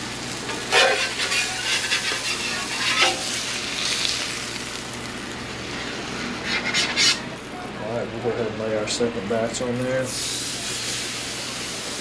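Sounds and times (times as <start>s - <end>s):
fish sizzling on griddle: 0.0s - 7.2s, 10.0s - 12.0s
metal spatula scraping griddle: 0.6s - 3.4s, 5.7s - 7.3s.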